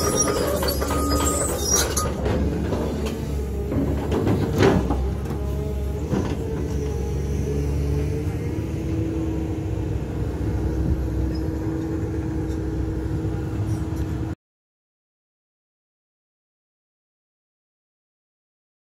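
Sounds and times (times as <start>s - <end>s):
excavator engine droning: 0.0s - 14.4s.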